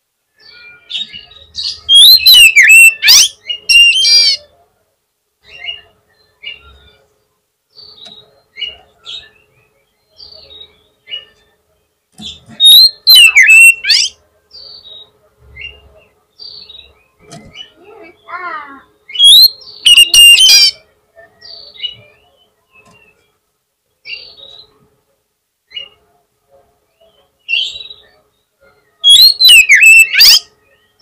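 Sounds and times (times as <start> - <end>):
bird singing whistled song: 0.4 - 4.4, 12.6 - 15.8, 19.1 - 20.8, 28.9 - 31.0.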